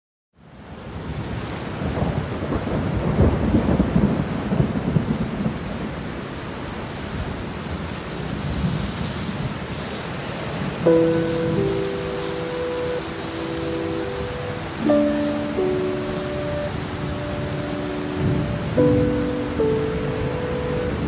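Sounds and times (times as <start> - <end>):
rain falling: 0.4 - 21.0
thunder rolling: 10.9 - 21.0.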